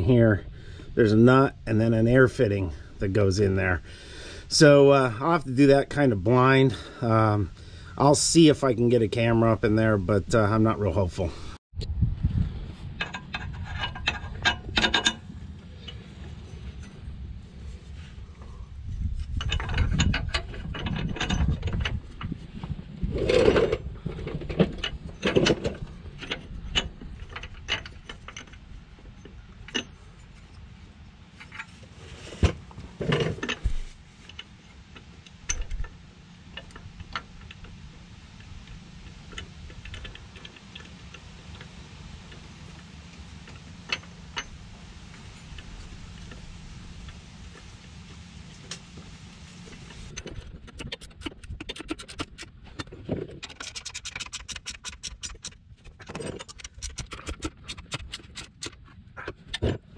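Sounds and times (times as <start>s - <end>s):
metal tools clicking and clinking: 53.4s - 58.8s.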